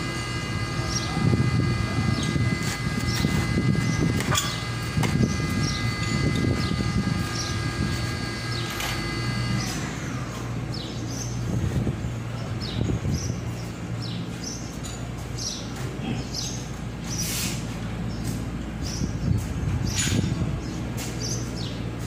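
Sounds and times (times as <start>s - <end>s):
high steady whine: 0.0s - 14.0s
machinery humming: 0.0s - 22.0s.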